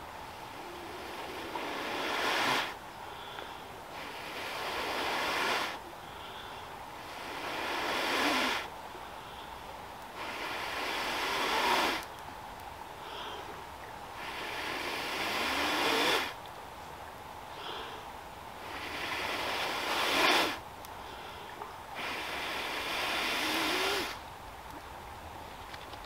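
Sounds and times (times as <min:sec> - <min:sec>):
person blowing breaths: 0:17.5 - 0:24.2.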